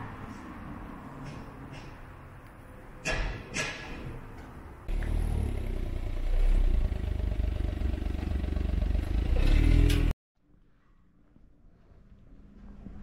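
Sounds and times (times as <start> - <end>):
loud low engine rumble: 4.9 - 10.2.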